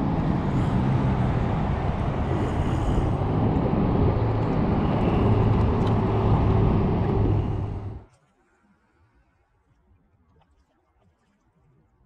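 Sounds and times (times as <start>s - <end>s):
steady low rumble: 0.0s - 8.1s
wind buffeting microphone: 0.0s - 8.1s.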